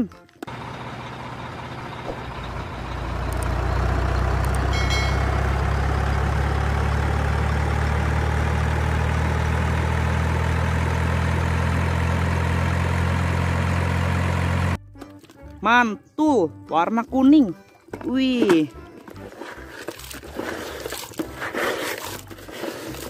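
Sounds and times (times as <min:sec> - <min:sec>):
heavy diesel engine drone: 0:00.4 - 0:14.8.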